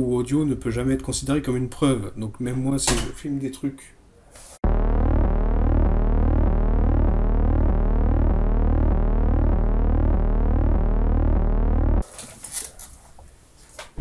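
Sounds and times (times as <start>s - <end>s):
eerie synthesized drone: 4.6s - 12.0s.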